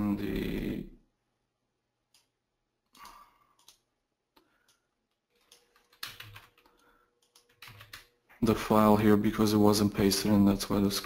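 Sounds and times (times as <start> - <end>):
keyboard keys clicking: 4.6 - 8.1.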